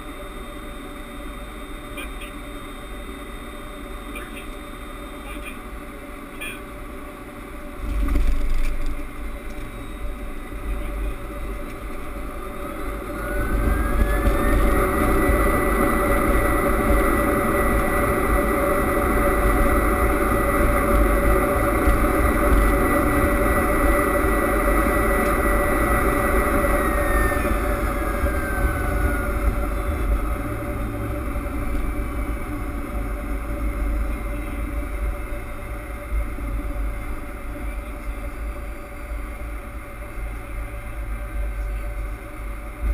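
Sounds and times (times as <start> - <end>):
jet engines reverse thrust whine: 0.0 - 42.9
runway rolling noise: 4.4 - 42.9.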